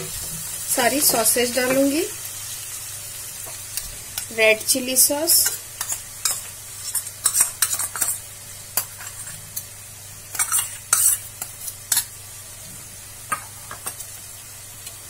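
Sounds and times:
vegetables sizzling in hot oil: 0.0 - 15.0
utensils scraping and knocking pan: 5.4 - 8.2, 8.8 - 9.4, 10.4 - 12.1.

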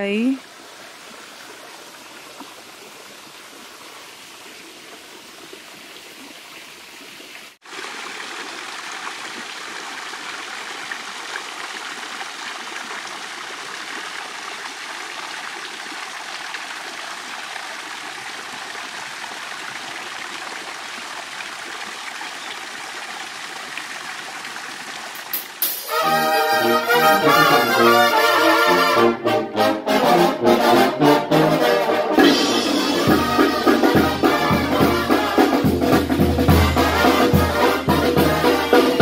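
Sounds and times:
water running in a creek: 0.0 - 29.2, 31.8 - 39.0
water rushing through a gate: 7.5 - 29.2, 31.4 - 39.0.

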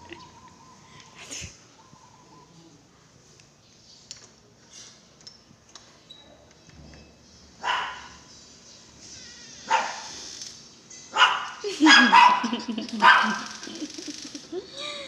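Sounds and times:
dog barking: 7.6 - 8.2, 9.7 - 10.1, 11.2 - 13.6.

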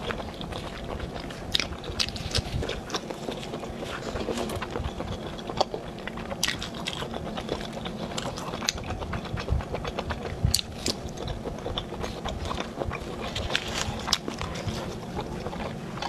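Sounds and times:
chewing crunchy food: 0.0 - 16.0.

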